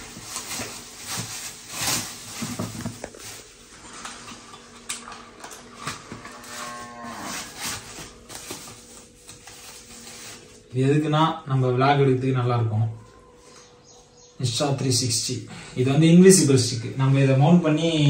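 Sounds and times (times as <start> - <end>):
bubble wrap crinkling: 0.0 - 4.3, 5.6 - 10.8.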